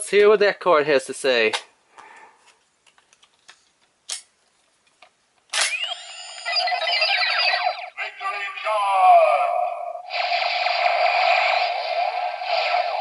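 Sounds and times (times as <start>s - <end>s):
plastic clicks: 2.8s - 5.5s
toy electronic sound effects and music: 5.7s - 8.1s.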